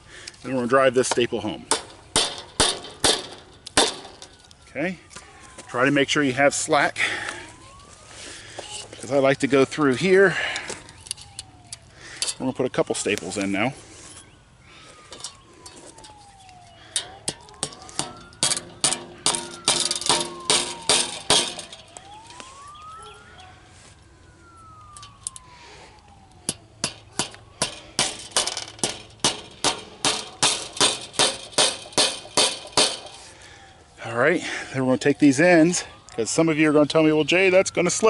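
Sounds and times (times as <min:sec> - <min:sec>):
distant siren wailing: 0:00.0 - 0:38.0
hammer striking staples into wood: 0:28.8 - 0:33.1.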